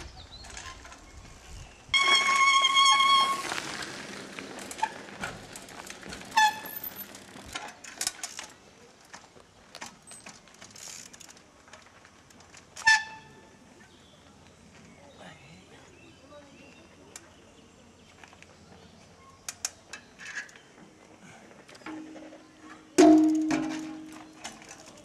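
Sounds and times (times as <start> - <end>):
brakes squealing: 1.9 - 7.6.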